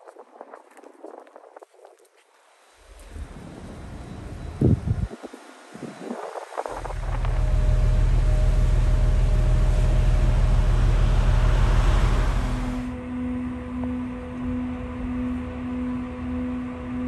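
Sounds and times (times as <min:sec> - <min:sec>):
faint steady hum: 0:02.4 - 0:17.0
diesel train engine rumble: 0:02.8 - 0:17.0
soft music with singing bowl tone: 0:12.9 - 0:17.0.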